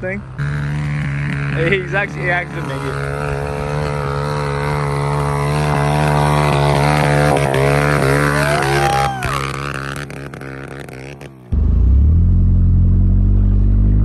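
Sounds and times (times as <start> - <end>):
motorbike engine revving uphill: 0.0 - 14.0.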